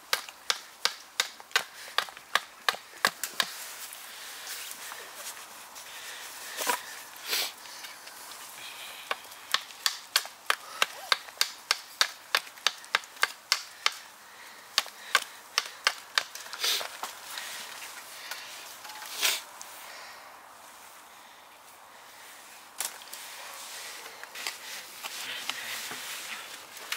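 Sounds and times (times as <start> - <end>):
knife chopping wood: 0.1 - 3.6, 9.5 - 14.0.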